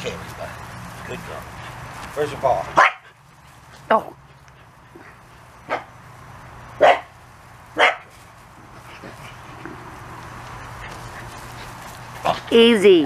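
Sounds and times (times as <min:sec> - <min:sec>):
dog barking: 0:02.7 - 0:03.2, 0:05.6 - 0:05.9, 0:06.8 - 0:07.1, 0:07.8 - 0:08.1.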